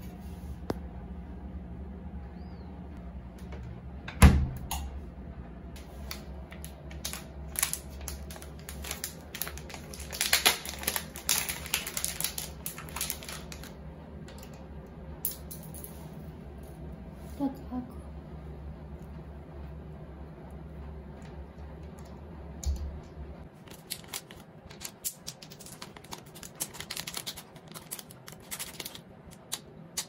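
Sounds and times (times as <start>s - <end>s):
steady low hum: 0.0s - 30.0s
plastic pouch crinkling: 5.9s - 13.8s, 23.5s - 30.0s.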